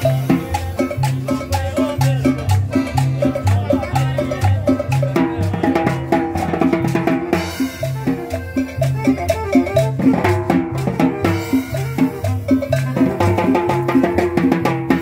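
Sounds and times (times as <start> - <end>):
bass line: 0.0 - 15.0
drum kit and percussion beat: 0.0 - 15.0
latin dance band music: 0.0 - 15.0.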